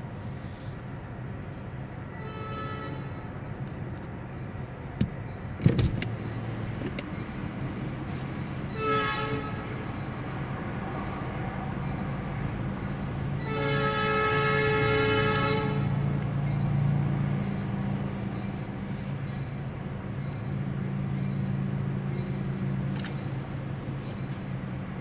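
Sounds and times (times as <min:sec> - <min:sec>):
locomotive horn blasts: 0:02.1 - 0:03.4, 0:08.6 - 0:10.0, 0:13.3 - 0:16.1.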